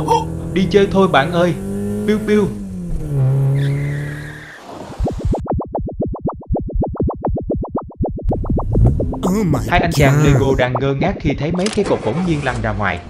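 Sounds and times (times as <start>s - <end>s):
low hum: 5.5s - 11.6s.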